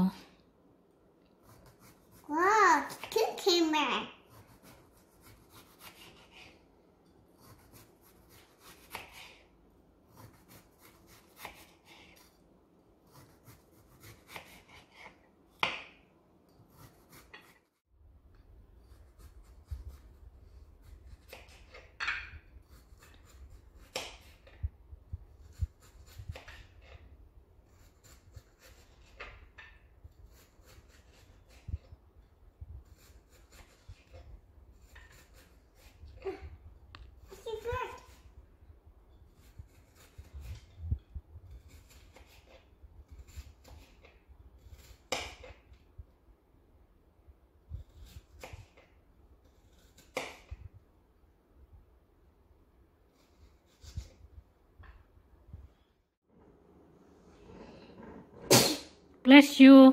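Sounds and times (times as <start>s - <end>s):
knife slicing cucumber: 4.2s - 6.7s, 7.3s - 12.4s, 13.0s - 17.8s, 18.8s - 38.4s, 39.3s - 45.8s, 47.6s - 50.8s, 53.1s - 54.4s.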